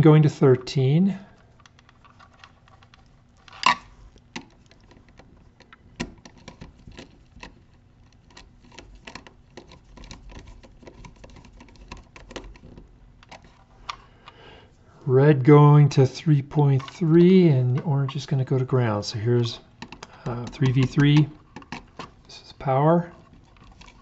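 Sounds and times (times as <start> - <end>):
screwdriver clicking and scraping: 19.8 - 22.2.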